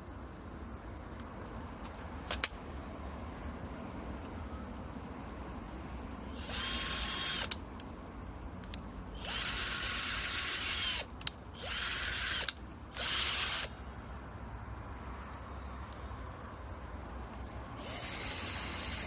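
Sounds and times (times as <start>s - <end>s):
sharp clicks: 1.2s - 2.6s, 7.2s - 8.0s, 8.6s - 13.7s
cordless drill motor whining: 6.4s - 7.6s, 9.2s - 13.7s, 17.8s - 19.0s.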